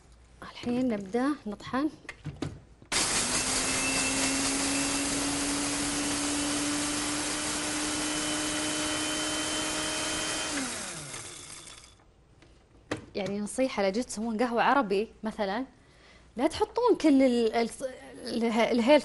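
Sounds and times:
electric spice grinder motor: 2.9s - 12.0s.

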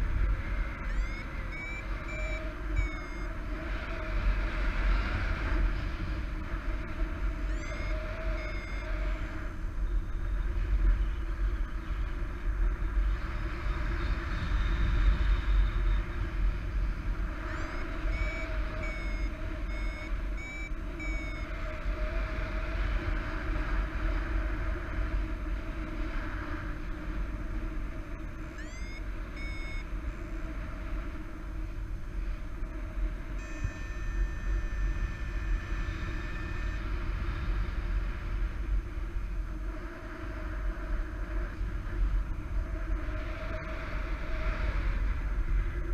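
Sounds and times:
variometer held tone: 0.0s - 12.9s, 13.8s - 44.4s
wind rushing over microphone: 0.0s - 45.9s
variometer short beeps: 0.7s - 3.4s, 7.4s - 9.0s, 17.4s - 21.6s, 28.5s - 29.9s, 33.4s - 36.9s.

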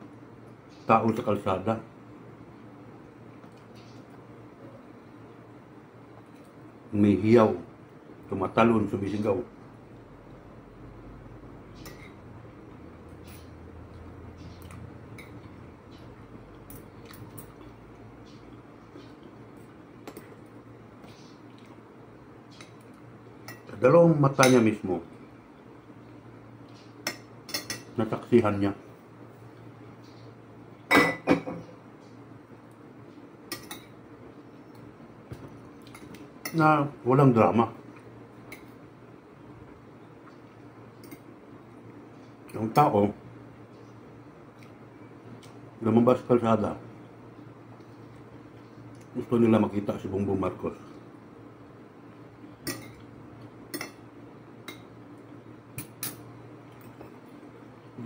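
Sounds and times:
spoon clinking on ceramic plates: 27.0s - 28.0s, 33.5s - 34.0s, 52.6s - 53.1s, 53.7s - 54.0s
cutlery clinking on plate: 52.6s - 53.0s.

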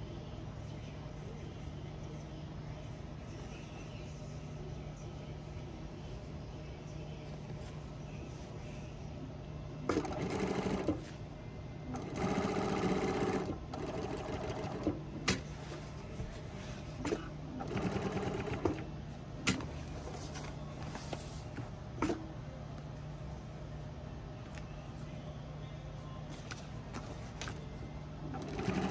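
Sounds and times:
steady low hum: 0.0s - 28.9s
sewing machine stitching: 11.9s - 15.4s, 28.3s - 28.9s.

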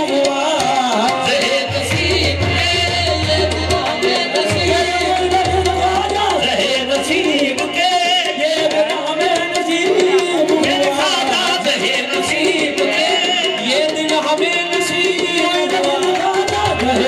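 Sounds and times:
harmonium: 0.0s - 17.0s
tabla: 0.0s - 17.0s
voices singing: 0.0s - 17.0s.

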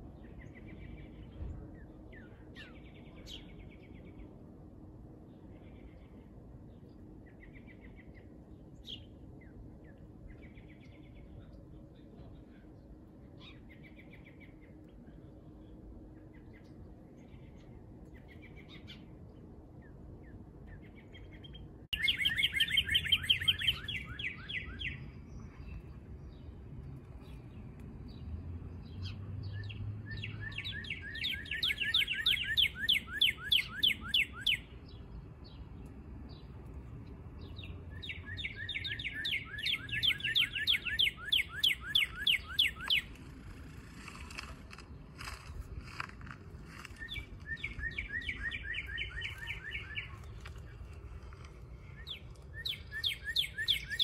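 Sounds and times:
songbird singing: 0.0s - 54.0s
faint bird chirps: 19.8s - 26.5s, 29.0s - 35.2s, 37.5s - 44.3s, 46.7s - 51.0s, 51.9s - 54.0s.

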